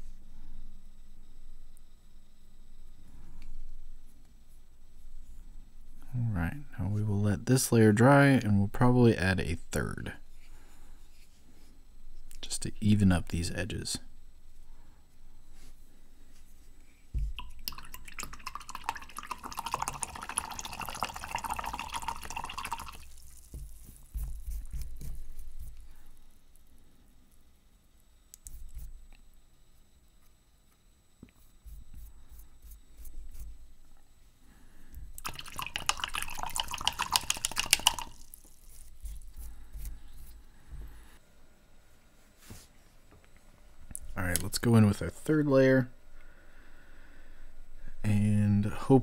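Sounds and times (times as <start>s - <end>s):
paintbrush splashing in water cup: 17.2s - 25.8s, 35.2s - 39.5s
liquid sloshing in small container: 17.3s - 23.9s, 35.2s - 38.9s.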